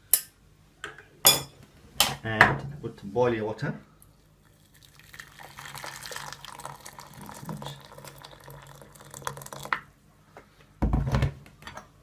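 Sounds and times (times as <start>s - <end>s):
water pouring into saucepan: 4.4s - 9.8s.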